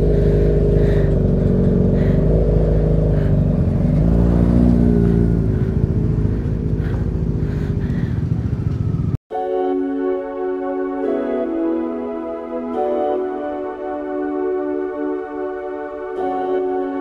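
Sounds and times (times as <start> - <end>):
motorcycle engine exhaust note: 0.0 - 9.2.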